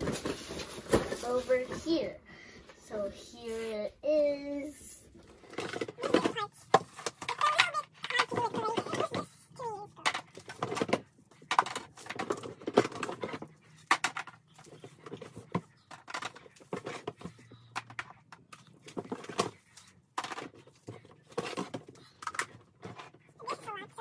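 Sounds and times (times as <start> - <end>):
plastic toy pieces clattering: 5.4 - 24.0.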